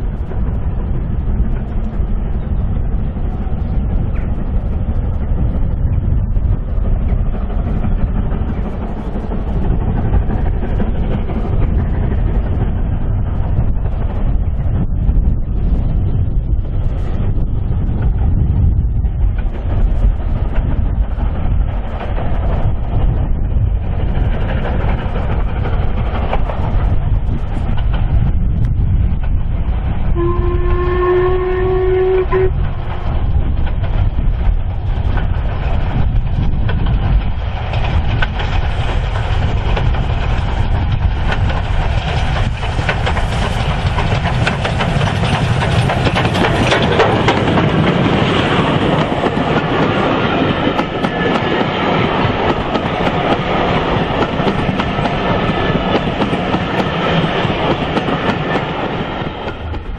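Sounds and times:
steam locomotive exhaust: 22.6s - 59.9s
chime-like train whistle: 30.2s - 32.5s
wheel clatter on rails: 32.5s - 59.9s.

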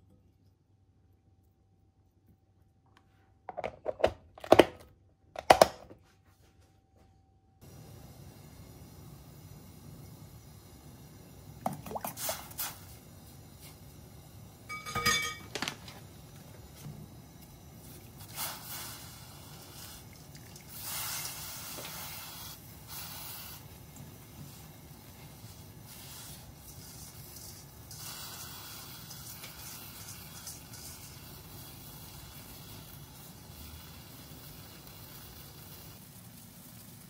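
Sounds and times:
metal spoon clinking on pot: 14.7s - 15.6s.

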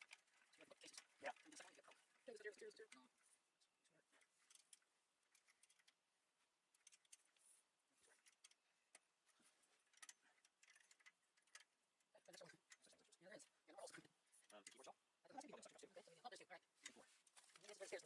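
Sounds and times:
small clicks of metal hardware: 4.2s - 6.0s, 6.7s - 7.4s, 8.1s - 13.2s, 13.9s - 15.0s.

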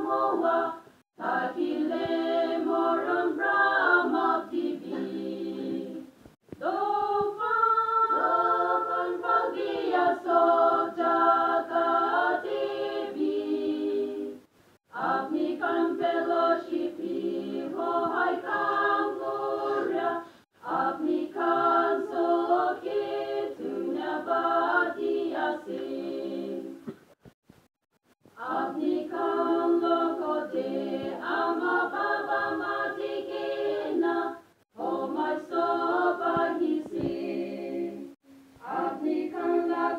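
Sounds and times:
women's choir singing a cappella: 0.0s - 26.9s, 28.4s - 39.9s.

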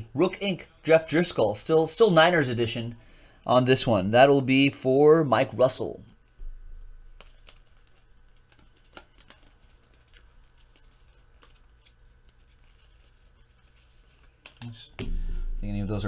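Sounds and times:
steady low hum: 0.0s - 16.0s
trading cards flipping: 7.0s - 14.8s.

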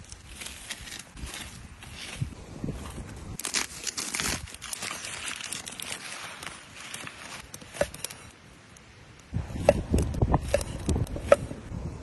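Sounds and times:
sausage casing crinkling and tearing: 3.4s - 7.5s.

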